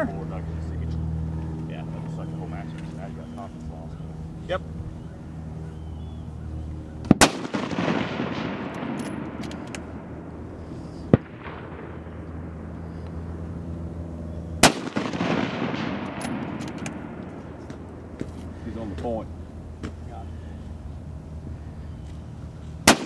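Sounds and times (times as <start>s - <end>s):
sharp crack: 7.0s - 10.2s, 11.0s - 13.2s, 14.6s - 18.3s
rifle shots with rolling echo: 7.0s - 18.6s.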